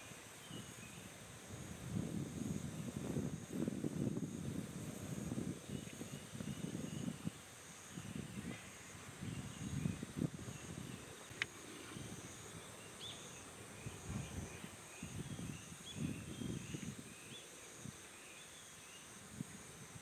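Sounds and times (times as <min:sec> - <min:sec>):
insects chirping: 0:00.0 - 0:20.0.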